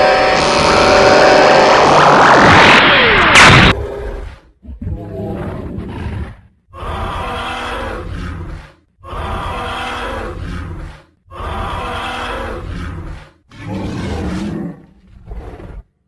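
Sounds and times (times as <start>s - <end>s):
creature roaring: 4.7s - 15.8s.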